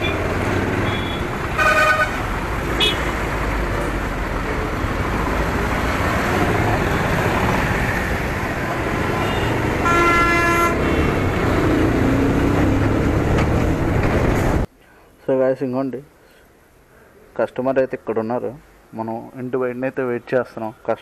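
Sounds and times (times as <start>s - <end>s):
vehicle engines: 0.0s - 14.7s
wind and road noise: 0.0s - 14.7s
vehicle horn honking: 0.8s - 2.2s, 2.8s - 3.1s, 9.2s - 11.2s.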